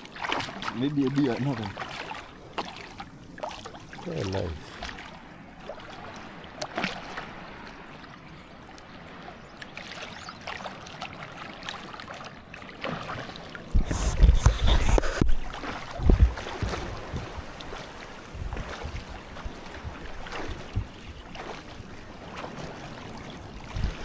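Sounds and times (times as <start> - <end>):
water splashing around swimmers: 0.0 - 24.0
wind buffeting microphone: 13.7 - 24.0.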